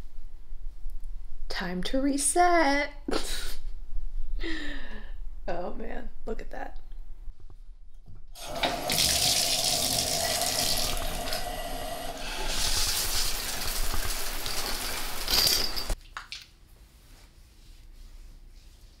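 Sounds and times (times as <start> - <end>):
water rushing from bathtub spout: 8.4 - 16.0.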